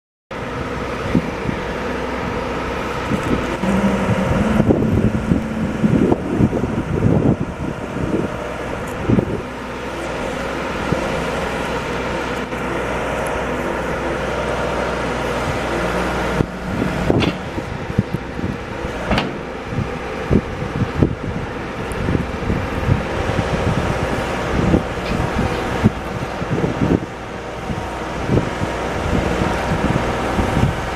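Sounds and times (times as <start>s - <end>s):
diesel engine running: 0.4s - 30.9s
backhoe bucket knocks and clunks: 19.1s - 19.6s.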